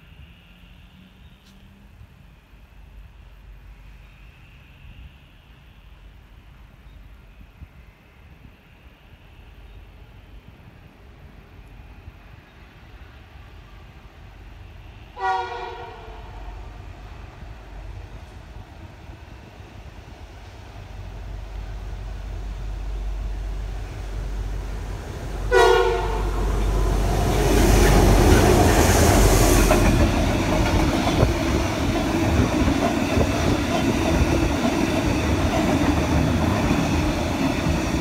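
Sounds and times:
diesel locomotives passing: 0.0 - 38.0
train horn blast: 15.2 - 16.8, 25.4 - 27.1.

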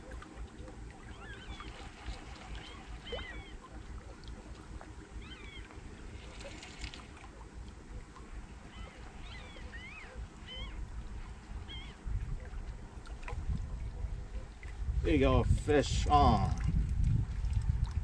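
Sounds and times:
birds calling: 0.5 - 4.2, 5.0 - 12.1
wind rumble on microphone: 1.6 - 18.0.

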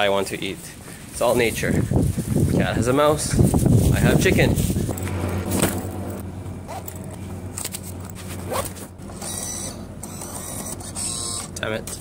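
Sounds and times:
high whir of feed motor: 4.6 - 12.0.

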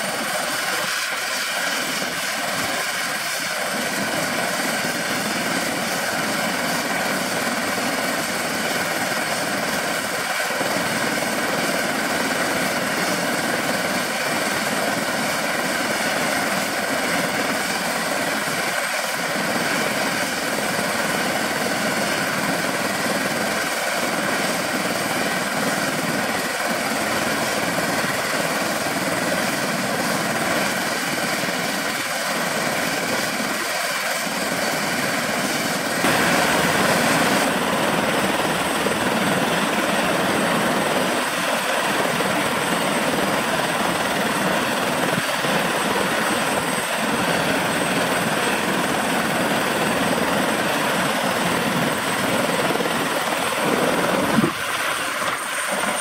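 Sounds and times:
helicopter turbine running: 0.0 - 56.0
helicopter rotor spinning up: 34.6 - 56.0.

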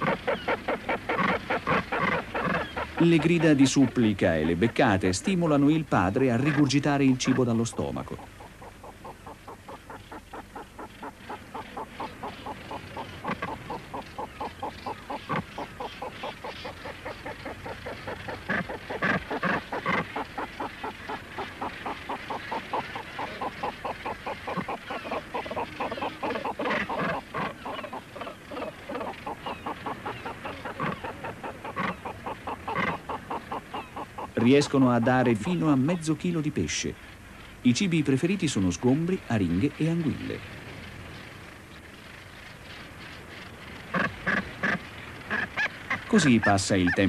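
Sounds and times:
bird chick begging calls: 6.4 - 35.8.

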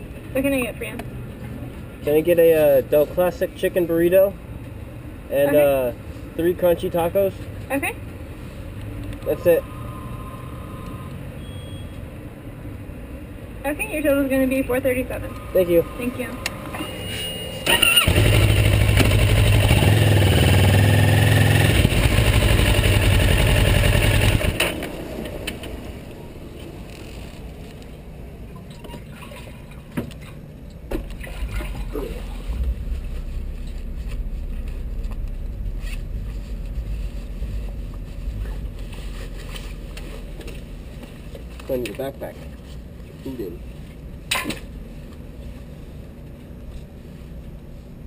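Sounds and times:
motorcycle engine: 15.5 - 27.4, 31.4 - 39.5.

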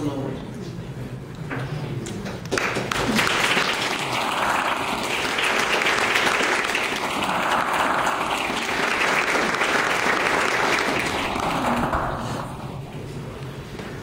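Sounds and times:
audience applauding: 2.5 - 12.8.

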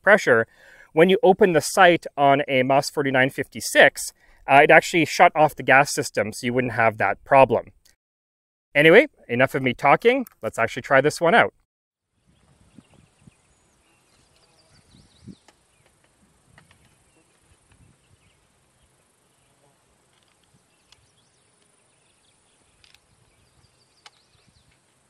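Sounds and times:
bird chirps: 12.2 - 16.0, 20.5 - 24.9
high insect hum: 12.4 - 25.0.

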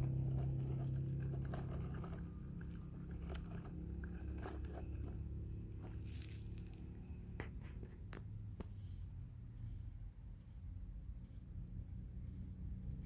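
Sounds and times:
toy tractor rolling over sandy dirt: 0.0 - 8.0
low steady hum: 0.0 - 13.0.

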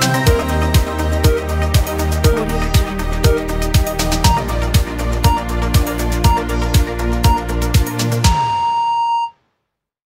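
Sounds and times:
crisp high percussion: 0.0 - 5.5
held synth notes: 0.0 - 7.9
steady kick drum: 0.3 - 8.6.

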